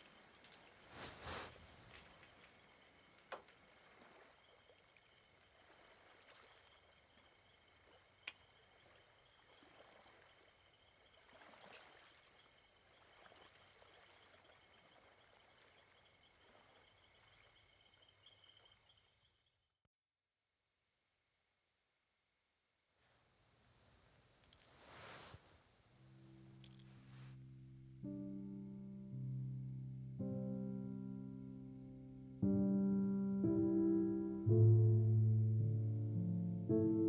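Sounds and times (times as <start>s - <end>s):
high insect trill: 0.0s - 19.7s, 20.8s - 34.4s
soft rustles of movement: 0.1s - 6.8s, 23.0s - 27.5s.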